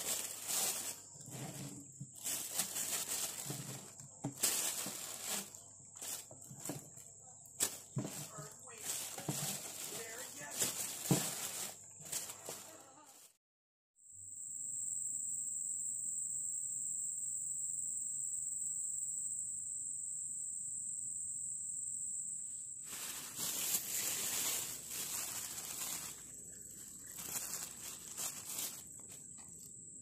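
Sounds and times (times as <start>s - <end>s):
plastic bag and peel rustling: 0.0s - 13.4s, 22.9s - 29.7s.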